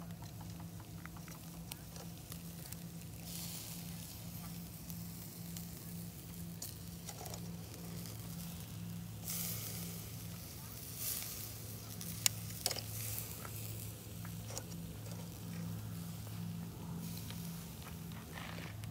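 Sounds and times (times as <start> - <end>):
meat sizzling on a grill: 0.0 - 18.9
steady low hum: 0.0 - 18.9.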